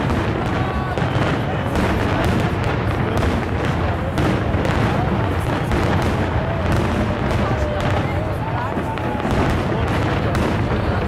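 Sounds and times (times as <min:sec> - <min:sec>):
crowd voices: 0:00.0 - 0:11.0
fireworks booming: 0:00.0 - 0:11.0.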